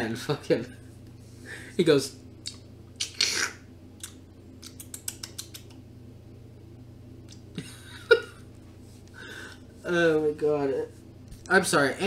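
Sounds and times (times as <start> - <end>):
small sharp clicks: 4.0 - 5.8
man laughing: 7.5 - 8.5.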